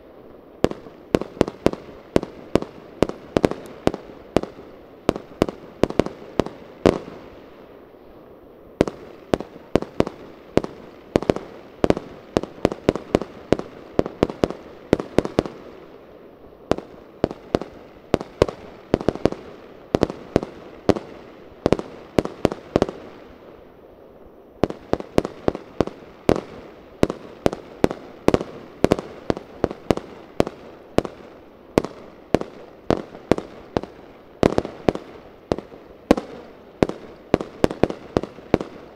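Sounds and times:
fireworks bangs: 0.6s - 7.4s, 16.7s - 23.3s, 24.6s - 38.9s.

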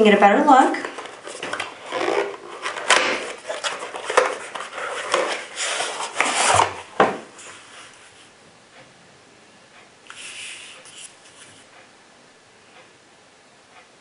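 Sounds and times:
cardboard rubbing and scraping: 0.8s - 8.3s.

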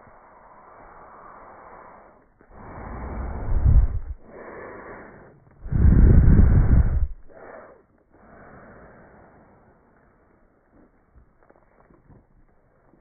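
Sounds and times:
deep noisy contact bursts: 2.5s - 7.7s.

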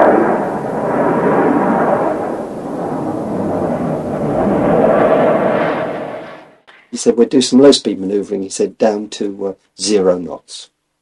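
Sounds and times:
jet fighter roar: 0.0s - 6.6s.

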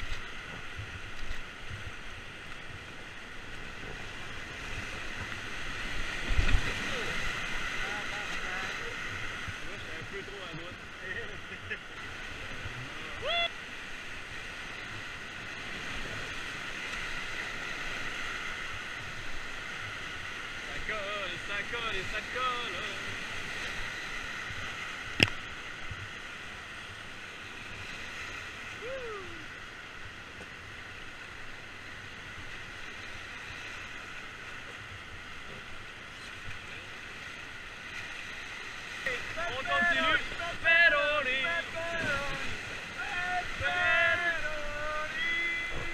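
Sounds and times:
person shouting: 13.1s - 13.5s, 28.8s - 29.4s, 43.0s - 45.9s
whitewater rapids rushing: 35.6s - 45.9s.

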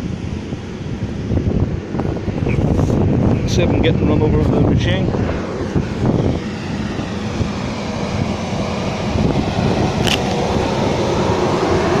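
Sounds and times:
riding mower engine running: 5.2s - 12.0s
sharp click: 10.0s - 10.4s.

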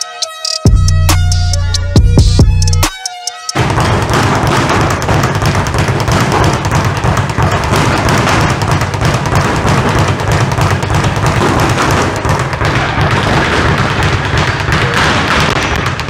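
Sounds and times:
speed bag rattling thuds: 3.6s - 16.0s.

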